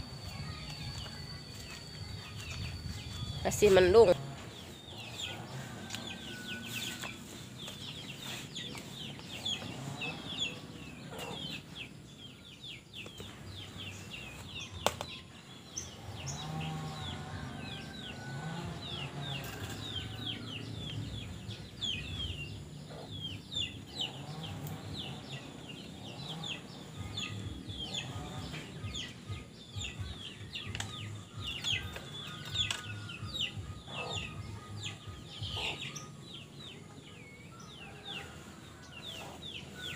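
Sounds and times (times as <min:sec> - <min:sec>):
birds chirping rapidly: 0:00.0 - 0:39.9
chickens clucking: 0:00.1 - 0:12.2, 0:15.8 - 0:39.9.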